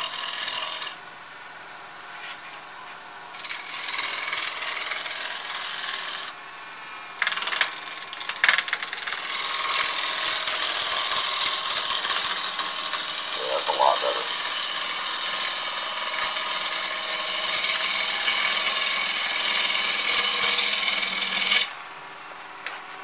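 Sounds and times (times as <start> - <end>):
lathe running hum: 8.9 - 22.6
gouge cutting wood on lathe: 9.2 - 21.7.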